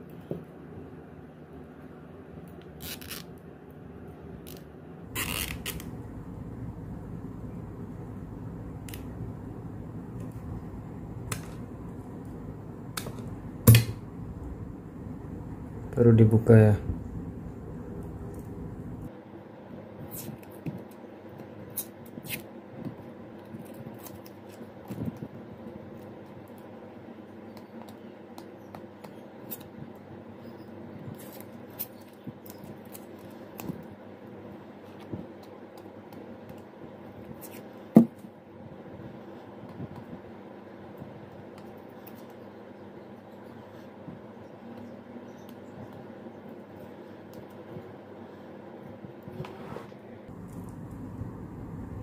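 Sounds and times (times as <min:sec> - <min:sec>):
low steady hum: 0:00.0 - 0:20.2, 0:21.0 - 0:52.0
tape tearing: 0:02.8 - 0:03.4, 0:04.5 - 0:05.9.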